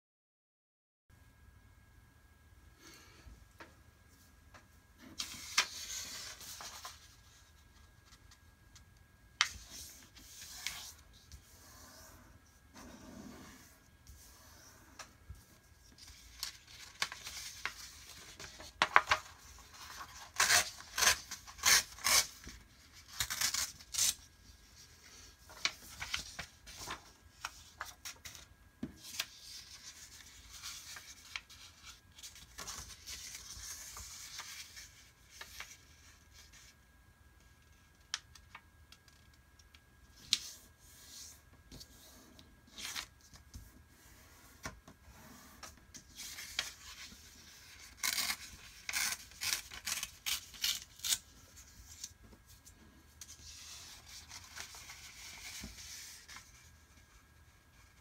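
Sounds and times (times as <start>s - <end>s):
paper rustling and rubbing: 5.0s - 8.4s, 9.4s - 36.8s, 40.3s - 58.0s
paper tearing crackles: 19.8s - 24.2s, 47.6s - 51.3s.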